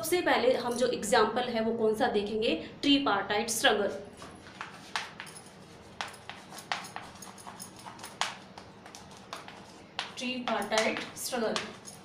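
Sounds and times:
chalk tapping and scratching on blackboard: 4.2 - 12.0.

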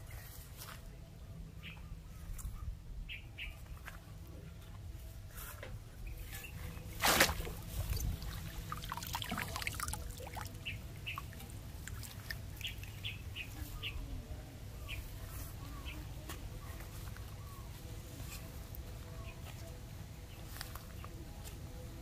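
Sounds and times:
loud splash: 7.0 - 10.5
water trickling: 7.1 - 13.0.

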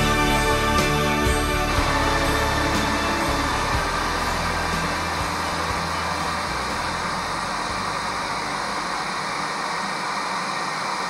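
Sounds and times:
closing chord low notes: 0.0 - 8.7.

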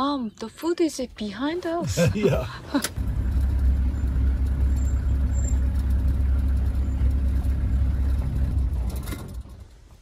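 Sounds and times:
vehicle engine idling: 2.9 - 9.9.

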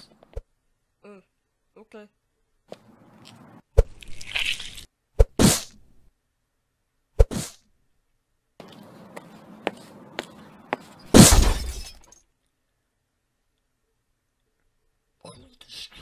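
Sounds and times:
loud crash: 11.1 - 12.0
sharp hits with crash: 11.1 - 12.0.

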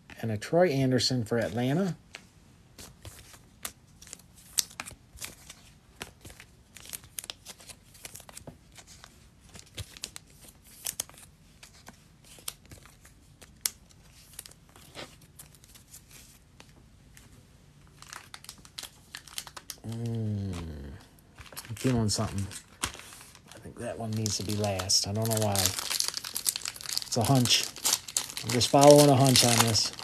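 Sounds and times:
foil wrappers crinkling: 3.1 - 11.7, 17.9 - 20.8, 21.4 - 30.0.

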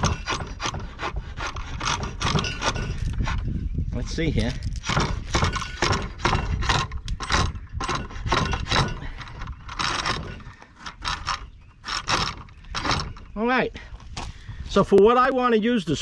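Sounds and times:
drawknife shaving wood: 0.0 - 3.5.

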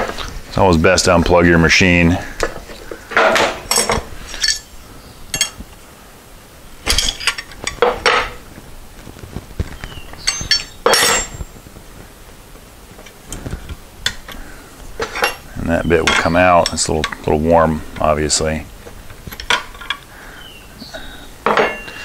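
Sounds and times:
wrenches clinking on metal: 3.2 - 4.7, 5.3 - 5.6, 6.9 - 8.4, 10.2 - 11.5, 15.0 - 15.4, 16.0 - 17.3, 19.3 - 20.1, 21.4 - 22.0.

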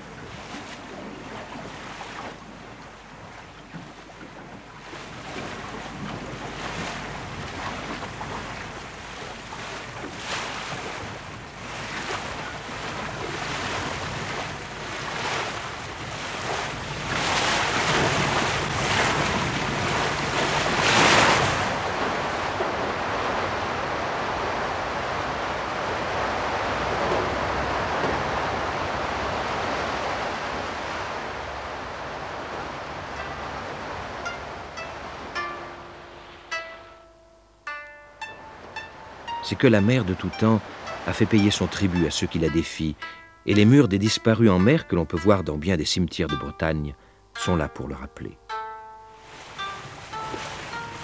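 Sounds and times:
waves splashing against hull: 0.0 - 36.8, 38.2 - 45.6, 49.2 - 51.0
wind: 0.0 - 51.0
breaking surf: 4.8 - 36.9, 38.2 - 44.4, 49.2 - 51.0.

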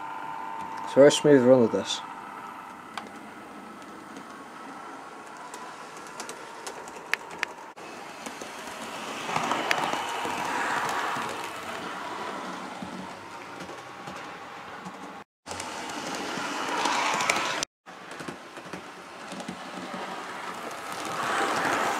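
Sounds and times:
wheels rolling on rails: 1.8 - 21.9
electric motor whirring: 8.0 - 14.1.

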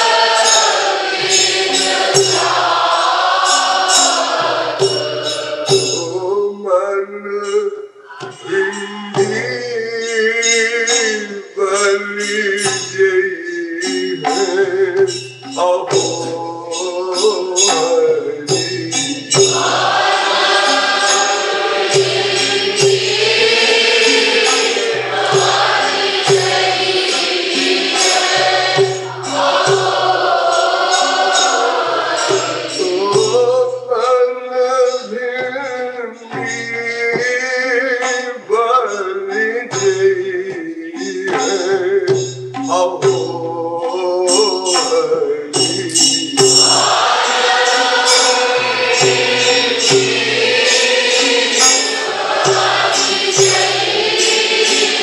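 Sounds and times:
many voices singing response: 0.0 - 6.4, 8.1 - 9.8, 13.8 - 33.7, 43.9 - 55.0
instrumental accompaniment: 0.0 - 6.5, 7.4 - 55.0
man singing solo: 5.0 - 19.7.

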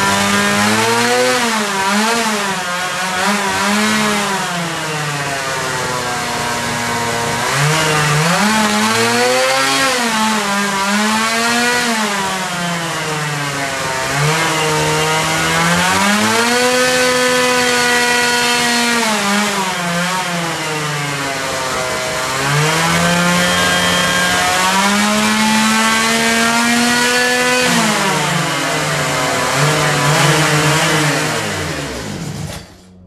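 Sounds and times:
chainsaw engine revving: 0.0 - 33.0.

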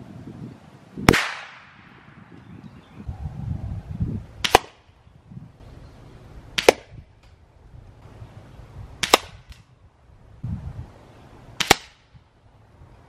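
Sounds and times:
air rifle shots: 1.1 - 2.2, 4.4 - 4.9, 6.6 - 7.0, 9.0 - 9.7, 11.6 - 12.2.

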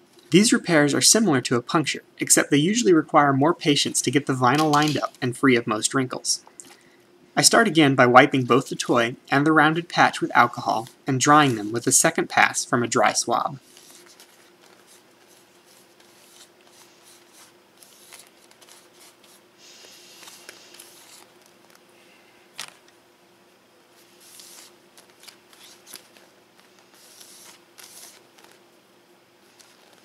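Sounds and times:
faint steady hum: 0.0 - 30.0
vinyl sheeting crinkling: 9.9 - 21.9, 22.5 - 22.9, 24.0 - 28.6, 29.4 - 30.0
cotton swabs rubbing on vinyl: 13.6 - 21.3, 24.0 - 26.0, 26.8 - 28.6.

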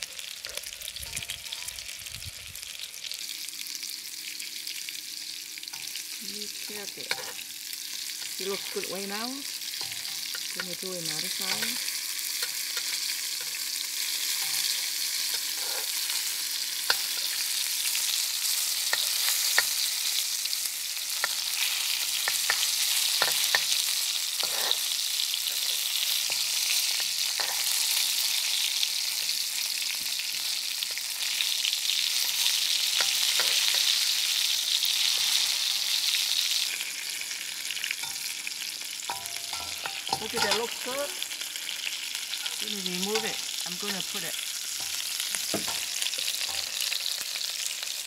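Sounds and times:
fish sizzling in hot oil: 0.0 - 48.0
spatula scraping a wok: 7.0 - 20.3, 21.0 - 28.5, 29.1 - 36.8, 41.6 - 47.6.

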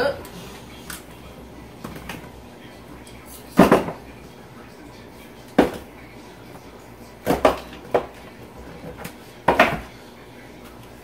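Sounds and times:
bottles clunking on a shelf: 3.6 - 4.1, 9.5 - 9.9.

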